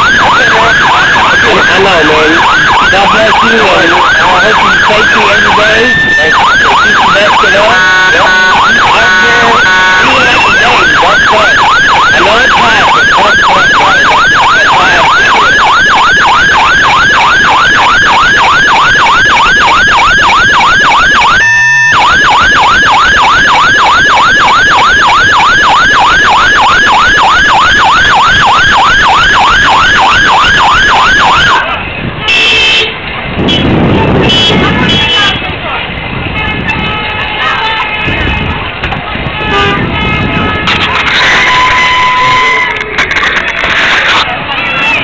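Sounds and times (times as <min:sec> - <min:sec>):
electronic siren yelping: 0:00.0 - 0:31.7, 0:40.6 - 0:44.2.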